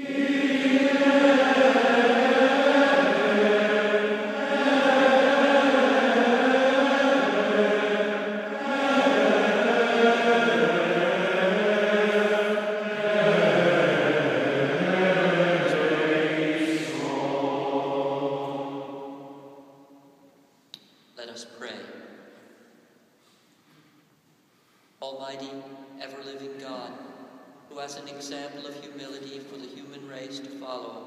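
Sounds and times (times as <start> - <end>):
group singing a chant: 0.0 - 19.9.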